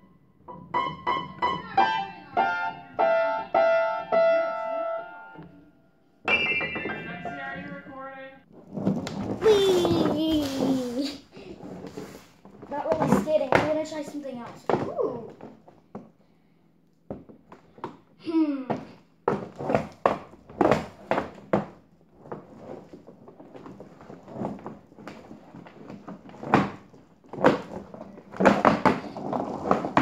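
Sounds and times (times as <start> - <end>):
roller skates on wooden floor: 6.3 - 16.2, 17.1 - 30.0.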